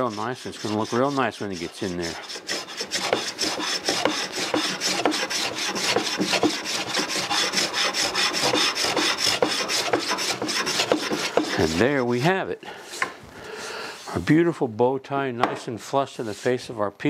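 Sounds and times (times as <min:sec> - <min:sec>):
hand plane rasping wood: 0:00.0 - 0:14.3.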